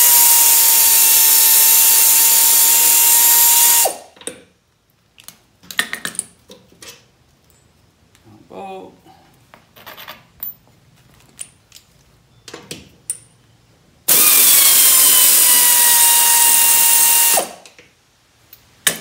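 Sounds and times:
air ratchet hissing and whining: 0.0 - 4.1, 14.1 - 17.6.

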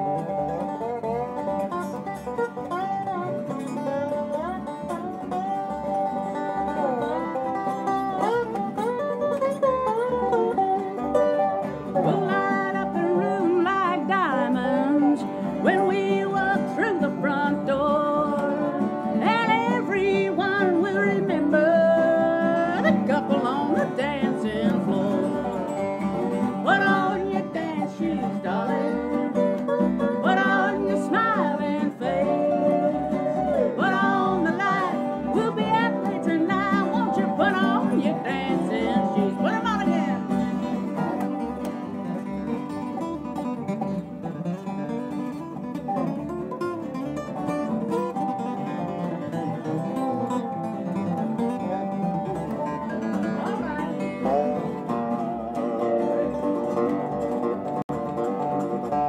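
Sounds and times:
acoustic country band playing: 0.0 - 59.0
gliding resonator guitar lead: 0.0 - 59.0.

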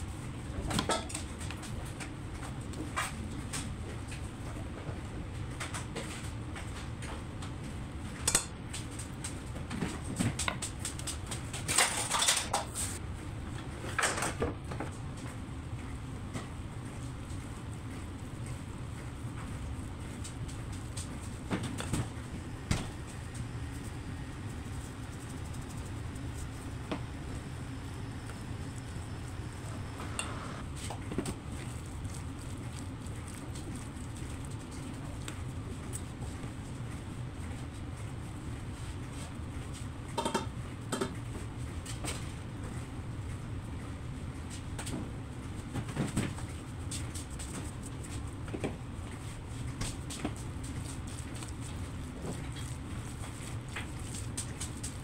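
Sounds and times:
steady low hum: 0.0 - 55.0
steady low rumble: 15.0 - 38.6
spatula stirring in a bowl: 22.3 - 30.3.

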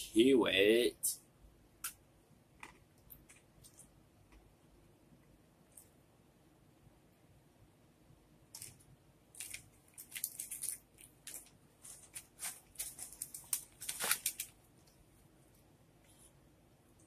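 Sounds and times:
plastic packaging crinkling: 8.6 - 14.6.

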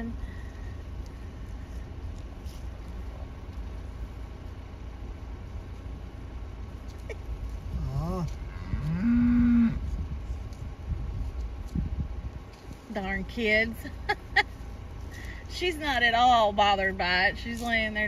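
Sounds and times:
cattle mooing: 7.7 - 9.9.

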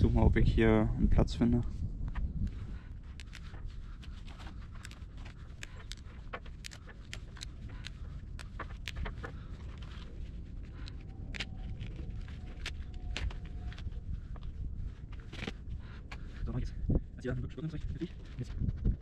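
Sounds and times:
twigs crackling and snapping: 2.4 - 16.3.

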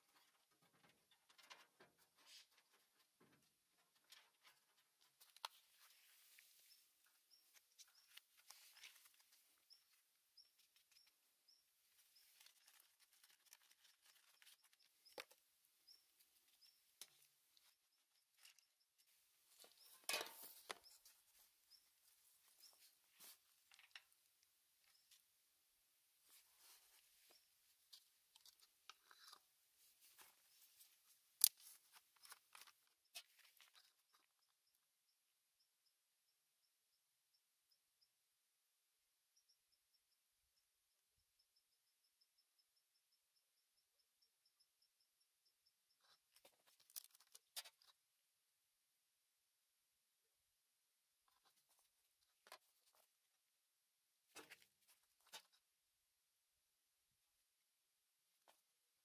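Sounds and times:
plastic funnel clicks and rustles: 19.6 - 21.1.

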